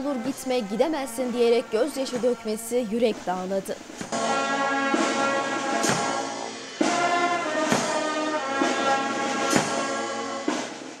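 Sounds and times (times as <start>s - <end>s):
brass band playing a slow march: 4.0s - 11.0s.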